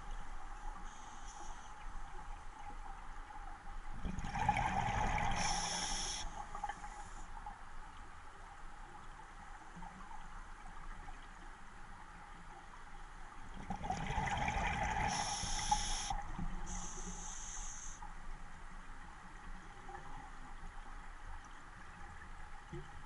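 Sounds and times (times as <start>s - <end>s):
regulator inhalation hiss: 5.3s - 7.2s, 15.1s - 18.0s.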